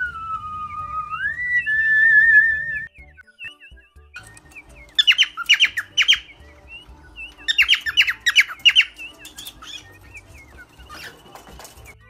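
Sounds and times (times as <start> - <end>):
parrots squawking: 5.0 - 12.0.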